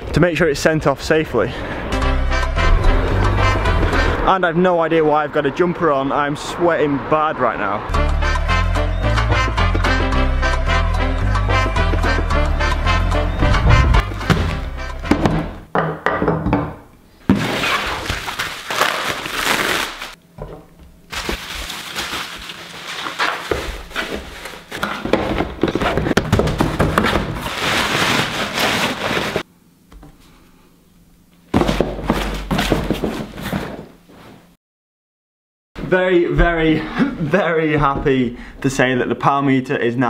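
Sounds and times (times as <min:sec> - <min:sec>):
box knocking on table: 0:13.5 - 0:16.7
bubble wrap and cardboard crinkling: 0:17.3 - 0:20.2, 0:21.1 - 0:29.5.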